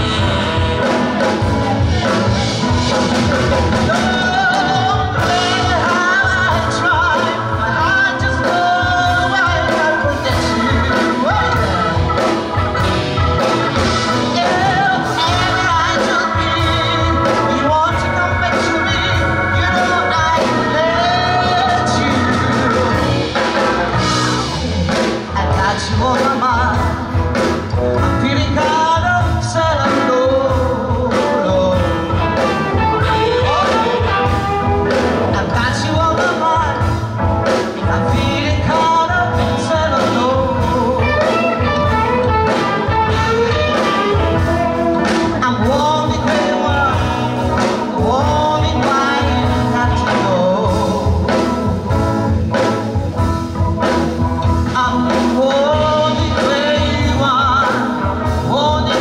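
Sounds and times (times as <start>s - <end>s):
saxophone: 0.0s - 25.2s, 31.1s - 35.7s, 39.4s - 50.2s
bass guitar: 0.0s - 59.0s
drums: 0.0s - 59.0s
electric guitar: 0.0s - 59.0s
keyboard: 0.0s - 59.0s
woman singing: 3.7s - 12.4s, 14.2s - 23.4s, 37.6s - 51.8s.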